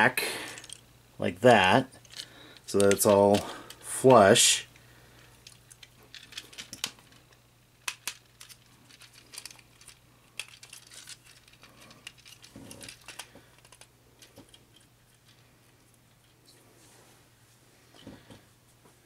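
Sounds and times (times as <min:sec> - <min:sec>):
plastic toy parts clicking: 0:02.0 - 0:03.5, 0:05.4 - 0:15.4.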